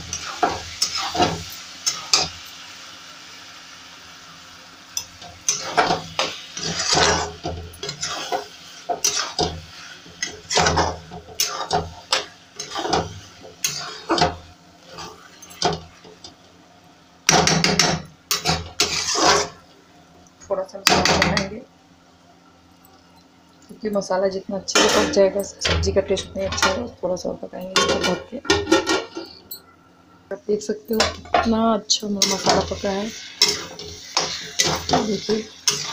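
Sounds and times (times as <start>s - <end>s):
frying sizzle: 0.0s - 35.9s
spatula scraping and clinking pan: 5.0s - 15.9s, 17.3s - 19.6s, 32.1s - 35.9s.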